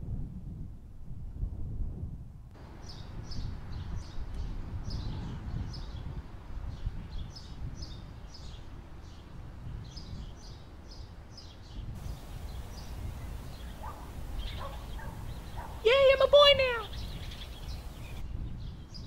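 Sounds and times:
wind rumble on microphone: 0:00.0 - 0:19.0
small birds chirping: 0:09.9 - 0:19.0.

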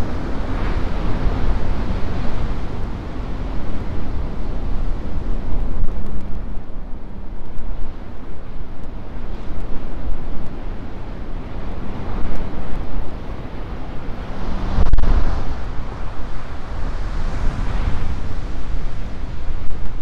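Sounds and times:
ocean surf crashing on rocks: 0:00.0 - 0:06.4, 0:13.6 - 0:20.0
wind buffeting microphone: 0:00.0 - 0:20.0.

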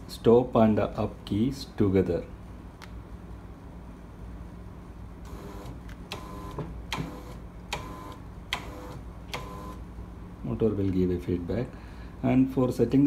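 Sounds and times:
shutter motor jerking with clicks: 0:05.3 - 0:09.8.

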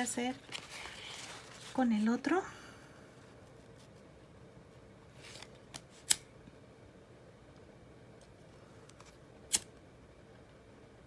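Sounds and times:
lighter clicks: 0:09.5 - 0:09.7
lighter spark wheel scrape: 0:09.5 - 0:09.7.

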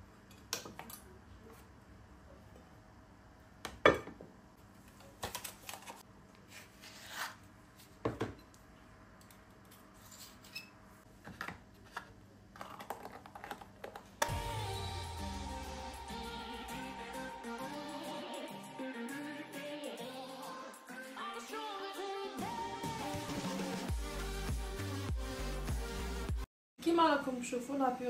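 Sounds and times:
steady sound: 0:14.2 - 0:20.0.

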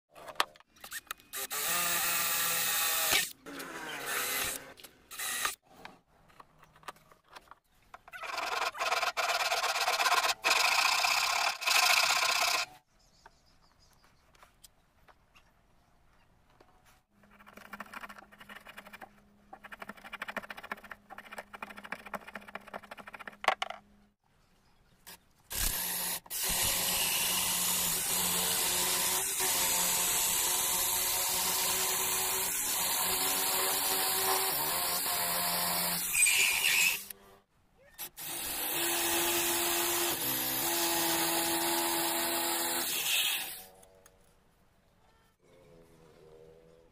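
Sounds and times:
power drill running steadily: 0:01.3 - 0:03.3, 0:04.1 - 0:05.6, 0:25.5 - 0:37.0
power drill boring into wood: 0:01.3 - 0:05.6, 0:08.2 - 0:12.7, 0:25.5 - 0:37.1, 0:38.0 - 0:43.7.

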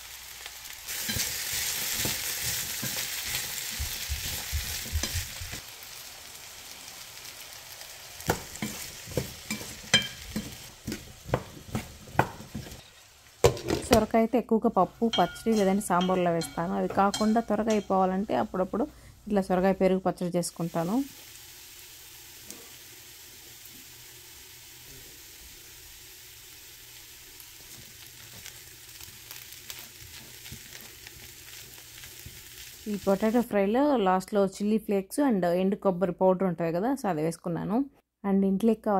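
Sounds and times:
potatoes sizzling in a frying pan: 0:00.0 - 0:33.5
spatula knocking and scraping pan: 0:01.0 - 0:05.6, 0:08.2 - 0:12.8, 0:13.4 - 0:14.1, 0:15.0 - 0:18.1, 0:29.3 - 0:31.6.

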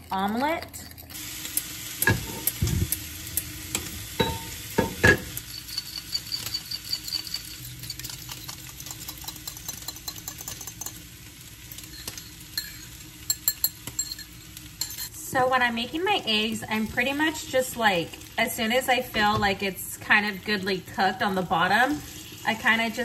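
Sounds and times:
bacon sizzling in a frying pan: 0:00.0 - 0:23.0
fork whisking eggs in a bowl: 0:05.5 - 0:11.0, 0:11.9 - 0:15.1.

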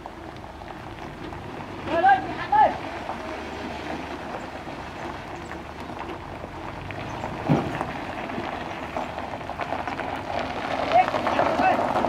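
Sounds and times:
diesel engine running low: 0:00.0 - 0:12.0
tyres crackling on gravel: 0:00.0 - 0:12.0.

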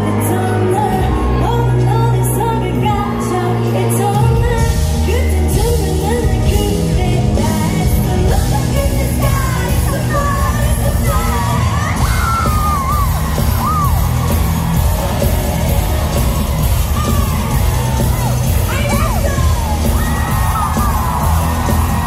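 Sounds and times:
woman singing: 0:00.0 - 0:13.9
audience yelling: 0:09.9 - 0:22.0
heavy bass beat: 0:10.0 - 0:22.0.

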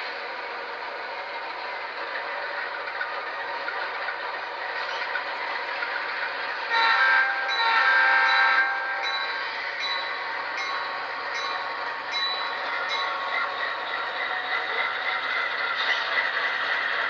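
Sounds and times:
diesel engine sound: 0:00.0 - 0:17.0
diesel locomotive horn: 0:06.6 - 0:09.2.

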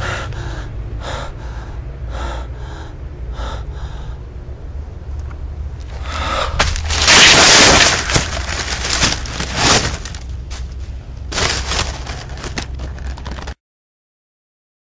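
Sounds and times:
low handling rumble: 0:00.0 - 0:13.6
rustling and crackling leaves: 0:05.8 - 0:13.6.

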